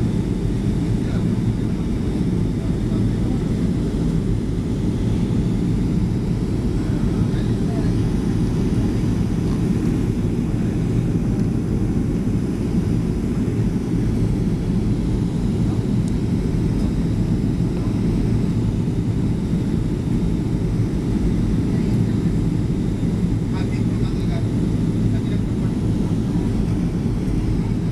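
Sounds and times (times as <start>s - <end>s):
airliner cabin engine rumble: 0.0s - 27.9s.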